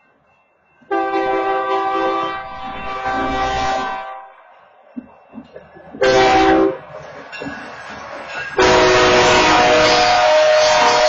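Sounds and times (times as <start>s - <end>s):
locomotive air horn: 0.9s - 4.3s, 6.0s - 6.9s, 8.6s - 11.0s.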